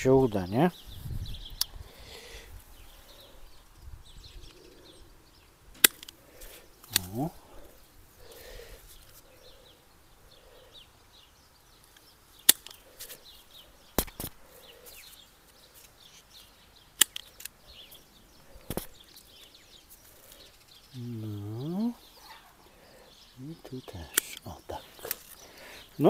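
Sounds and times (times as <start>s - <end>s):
pruning shears snipping stems: 5.7s - 7.3s, 11.9s - 13.2s, 14.0s - 16.0s, 17.0s - 17.6s, 24.1s - 25.4s.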